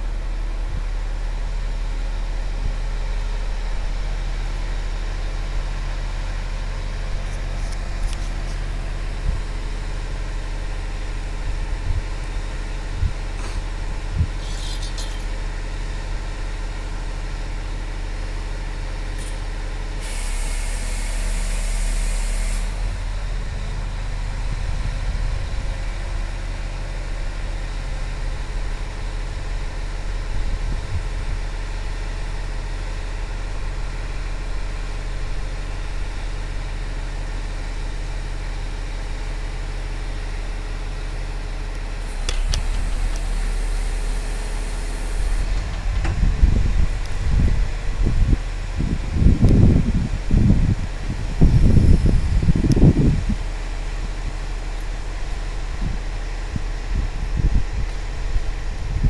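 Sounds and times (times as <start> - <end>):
heavy engine idling: 0.0 - 59.0
burst of hissing: 20.0 - 22.8.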